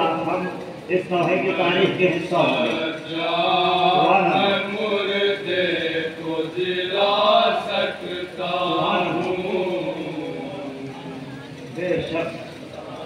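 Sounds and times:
man chanting a lament: 0.0s - 6.0s.

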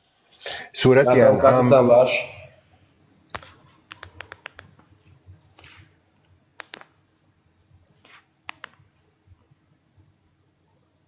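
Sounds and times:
low background noise: 0.0s - 11.0s
faint sharp clicks: 8.0s - 8.8s.

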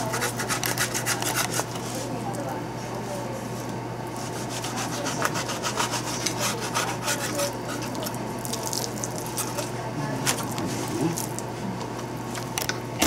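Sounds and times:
knife sawing through fish: 0.0s - 1.8s, 4.2s - 8.1s.

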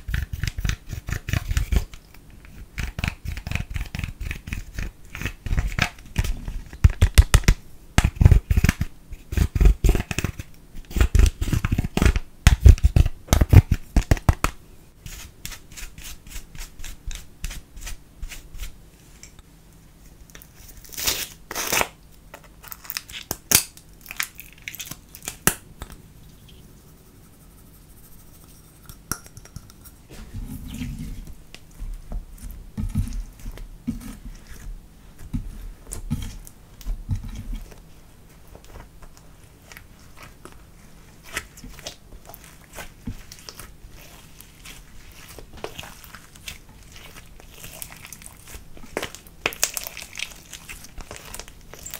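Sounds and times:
slime squishing by hand: 30.0s - 51.9s.

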